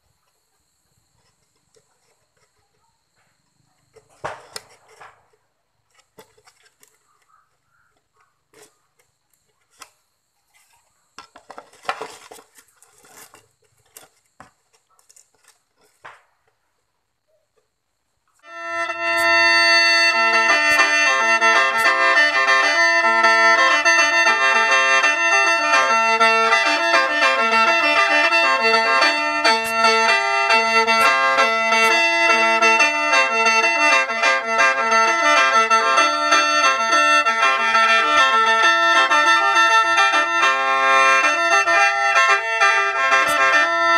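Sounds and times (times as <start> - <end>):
plywood panels knocking: 3.9 - 7.4, 11.2 - 16.4
melody over drone notes: 18.4 - 43.9.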